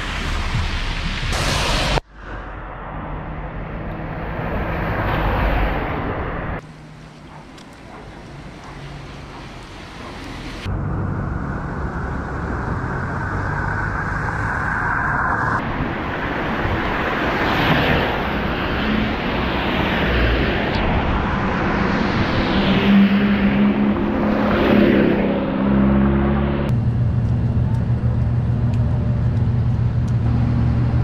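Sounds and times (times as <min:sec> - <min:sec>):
faint engine hum: 0:26.6 - 0:31.0.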